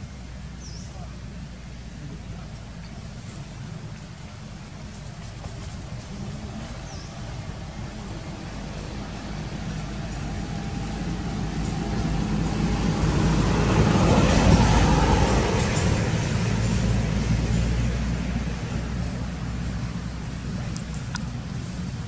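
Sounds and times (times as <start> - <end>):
vehicle driving past: 5.4 - 20.6.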